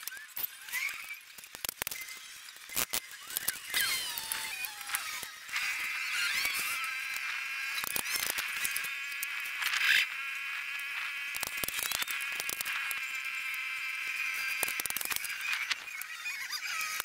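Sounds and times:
high-pitched insect buzzing: 0.1s - 17.0s
wooden strips clicking on board: 14.4s - 17.0s.

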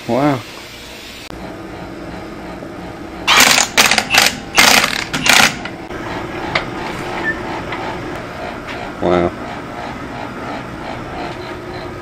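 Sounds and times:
impact driver bursts: 3.3s - 5.6s.

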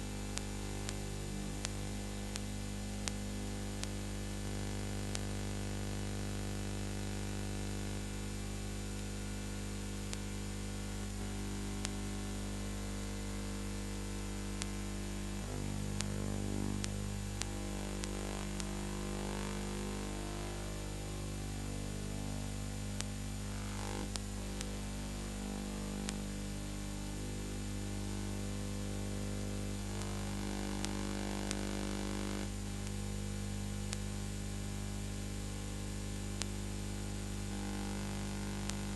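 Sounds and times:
electrical mains hum with hiss: 0.0s - 38.9s
scattered clicks: 14.6s - 21.6s, 22.4s - 26.3s.

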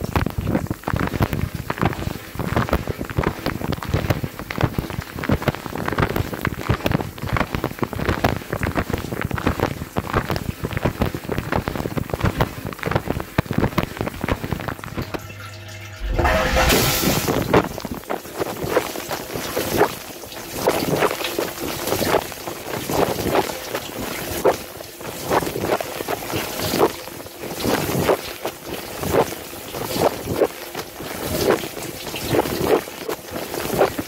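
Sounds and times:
rush of water: 10.1s - 34.0s
dishwasher water splashing: 16.8s - 34.0s.

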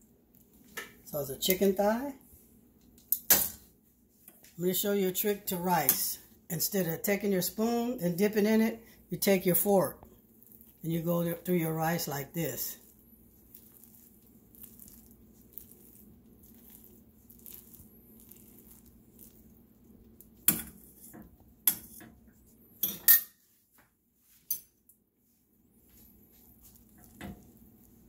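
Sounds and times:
fork raking through rice: 10.1s - 22.6s, 25.8s - 28.0s.

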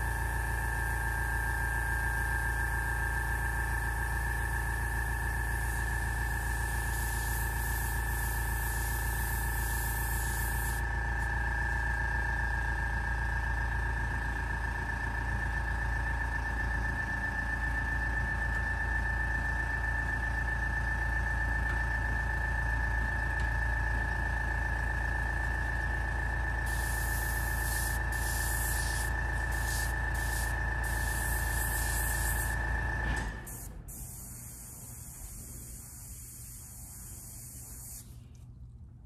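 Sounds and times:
steady hum with high whine: 0.0s - 39.0s
airbrush hissing: 5.4s - 10.8s, 26.6s - 32.6s, 33.5s - 38.2s.

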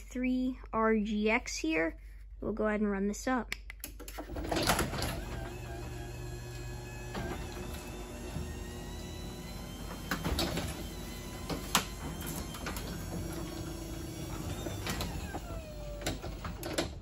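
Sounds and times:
door clicks and rattles: 3.9s - 17.0s
garage door motor hum: 4.1s - 17.0s.

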